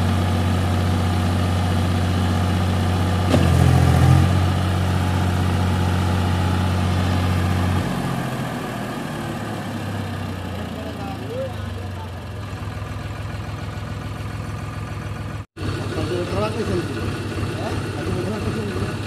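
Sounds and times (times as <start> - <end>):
tractor diesel engine running: 0.0 - 19.0
engine knock: 10.4 - 19.0.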